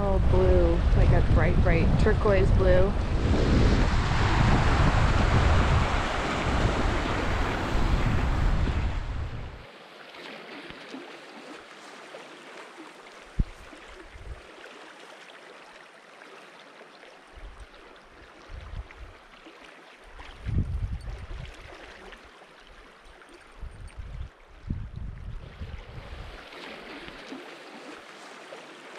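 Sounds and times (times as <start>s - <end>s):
wind buffeting microphone: 0.0s - 9.6s, 13.4s - 14.4s, 18.4s - 19.1s, 20.4s - 21.7s, 23.5s - 26.4s
river rushing over gravel: 3.3s - 9.1s.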